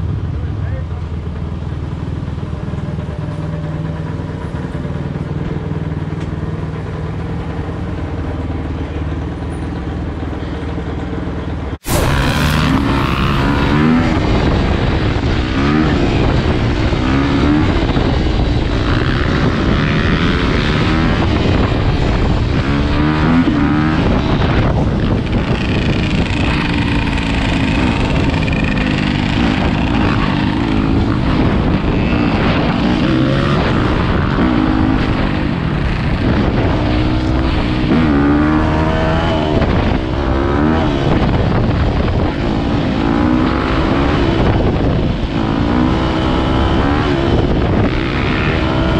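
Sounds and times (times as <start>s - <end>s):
dirt bike engine revving: 11.8s - 48.9s.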